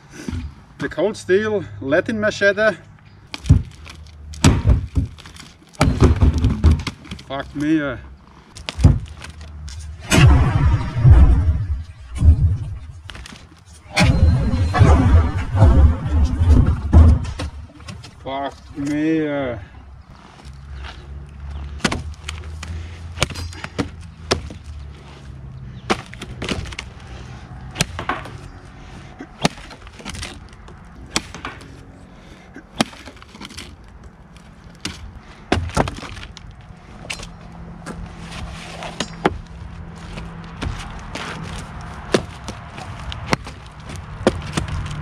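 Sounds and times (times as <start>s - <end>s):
machete chopping wood: 3.3s - 7.1s, 21.8s - 22.6s, 23.2s - 24.7s, 27.8s - 28.4s, 29.4s - 30.5s, 31.1s - 31.7s, 32.8s - 33.8s, 34.8s - 36.3s, 42.1s - 42.6s, 43.2s - 45.0s.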